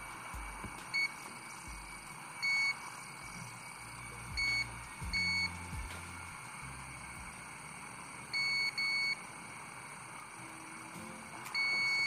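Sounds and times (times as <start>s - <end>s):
multimeter short high beeps: 4.4s - 5.6s, 8.4s - 9.2s, 11.5s - 12.0s.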